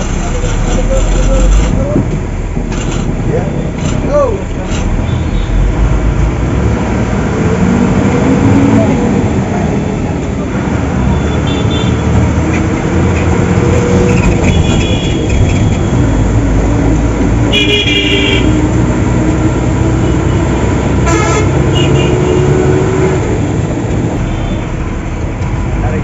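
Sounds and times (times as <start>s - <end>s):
bus engine and road noise: 0.0s - 26.0s
horns honking: 10.9s - 12.4s, 13.6s - 16.3s, 17.4s - 18.8s, 20.0s - 23.2s.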